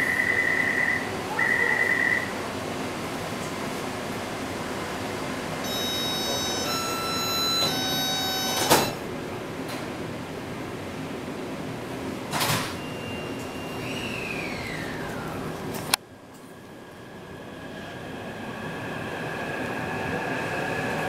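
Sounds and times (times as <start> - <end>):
door chime tones: 5.6 - 9.0
short electronic beep: 5.7 - 9.0
sliding doors thumping shut: 7.6 - 9.0.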